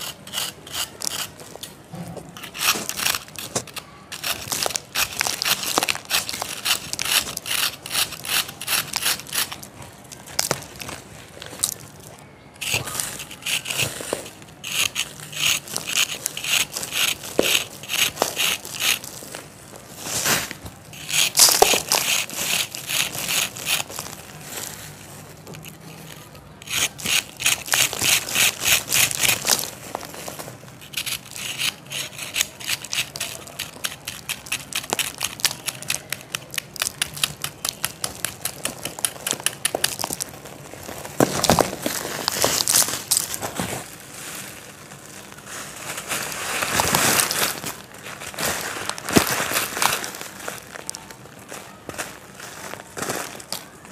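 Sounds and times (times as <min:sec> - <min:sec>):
knife scraping sand block: 0:00.0 - 0:01.4, 0:02.4 - 0:09.6, 0:12.7 - 0:19.2, 0:20.4 - 0:23.9, 0:26.6 - 0:29.7, 0:30.8 - 0:40.1.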